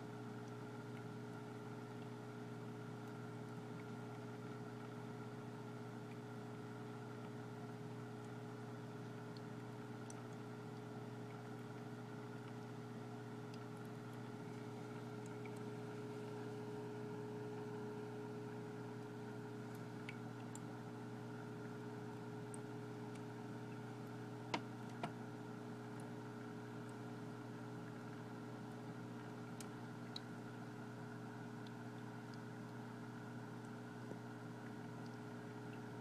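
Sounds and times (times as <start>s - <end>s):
faint ticks: 29.2s - 30.4s.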